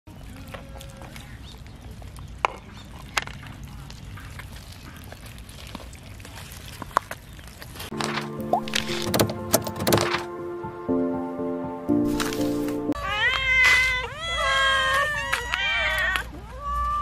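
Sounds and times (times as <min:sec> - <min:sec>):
cats eating clicks and smacks: 0:00.1 - 0:07.9
music: 0:07.9 - 0:13.0.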